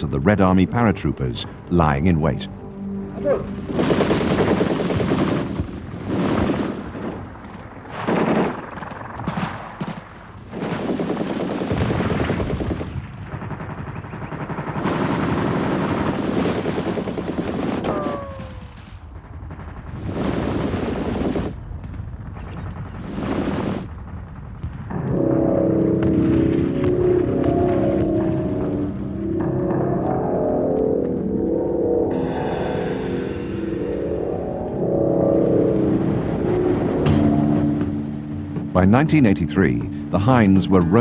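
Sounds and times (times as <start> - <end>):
automatic gunfire: 7.9 - 21.5
short falling whine: 24.9 - 38.7.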